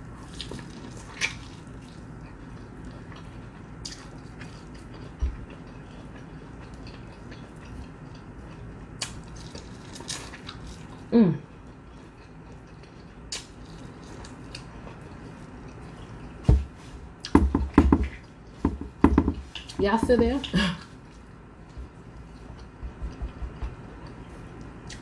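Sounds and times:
wet chewing of corn: 0.0s - 17.4s.

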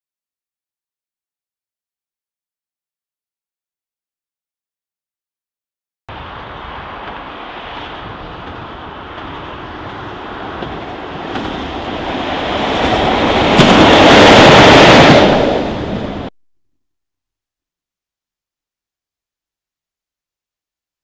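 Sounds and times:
diesel locomotive passing: 6.1s - 16.3s.

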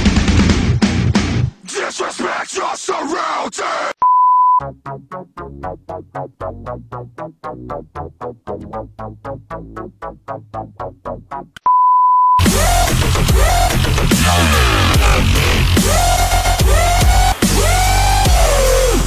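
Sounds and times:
loud high-pitched beep: 4.0s - 4.6s.

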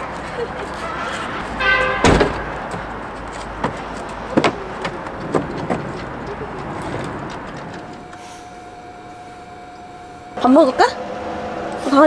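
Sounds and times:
steady background noise: 0.0s - 12.0s
knocks and clicks of handling: 2.0s - 8.2s.

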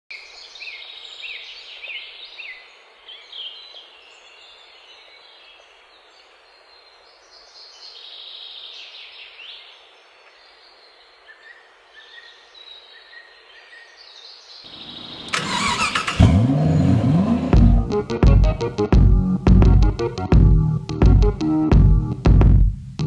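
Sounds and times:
soft outdoor hiss: 0.1s - 23.0s
birds singing: 0.2s - 16.9s.

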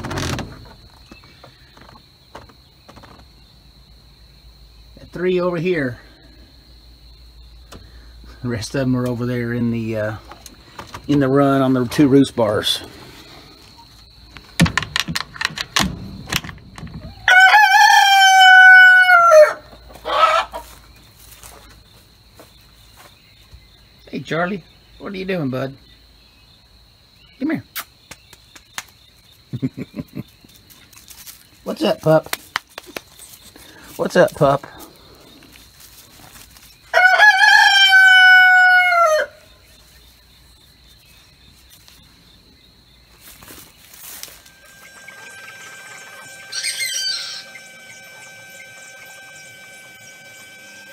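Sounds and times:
crickets chirping: 0.0s - 50.9s
door latch clicks and knocks: 14.6s - 17.1s
rooster crowing: 17.0s - 20.7s, 36.9s - 39.4s, 44.5s - 50.9s.

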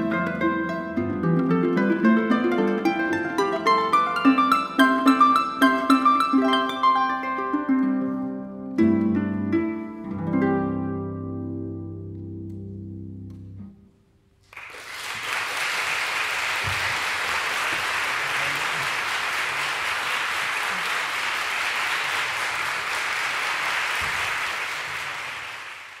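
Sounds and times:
audience applauding: 14.4s - 26.0s.

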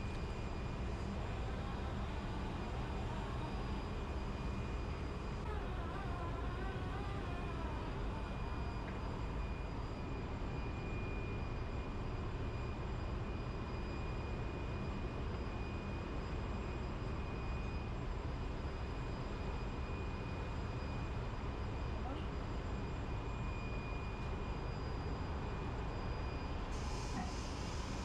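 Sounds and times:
high whine: 0.0s - 10.8s
machinery drone: 0.0s - 11.0s.

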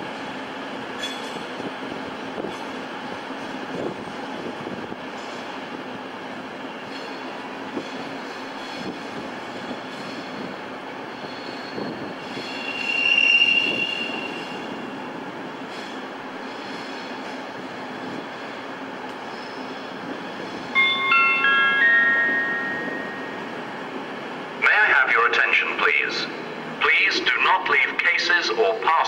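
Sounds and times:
train wheel and rail noise: 0.0s - 29.0s
high wheel squeal: 11.1s - 14.8s, 19.2s - 19.8s.

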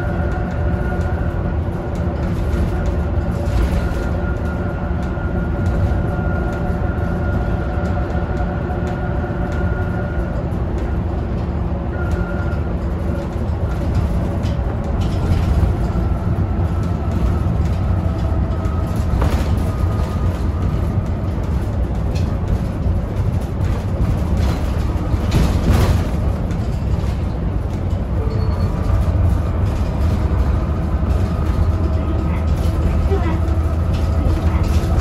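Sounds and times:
bus engine drone: 0.0s - 35.0s
body rattles and knocks: 12.4s - 35.0s.

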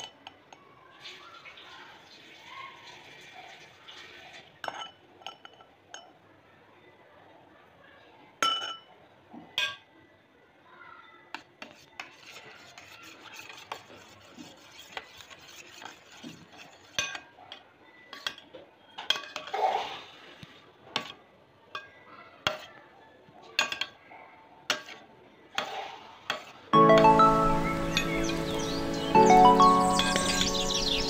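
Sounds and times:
spoon clinking against steel bowl: 0.0s - 0.6s, 4.6s - 6.2s, 8.4s - 9.0s, 15.4s - 19.5s, 29.6s - 31.0s
spoon scraping bowl: 11.4s - 18.4s, 25.6s - 31.0s
music: 26.8s - 31.0s.

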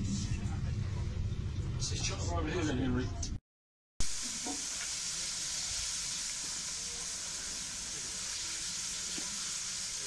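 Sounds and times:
steam locomotive hissing steam: 4.1s - 10.0s.

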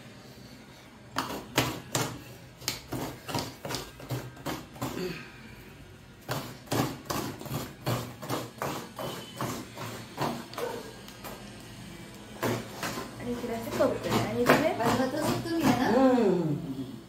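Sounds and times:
coconut scraped on hand grater: 6.2s - 11.0s, 12.4s - 16.2s.

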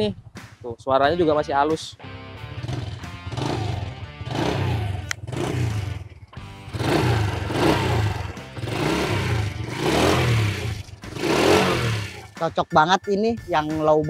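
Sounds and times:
background music: 0.0s - 14.0s
motorcycle engine revving: 2.5s - 12.5s.

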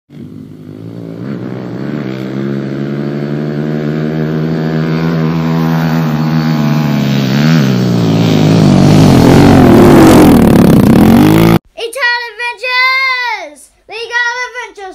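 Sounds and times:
pit bike engines revving: 0.1s - 11.6s.

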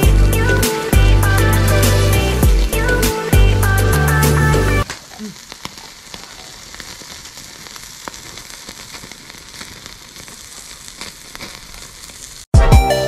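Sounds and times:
loud music: 0.0s - 4.8s, 12.6s - 13.0s
food sizzling over charcoal: 0.0s - 12.5s.

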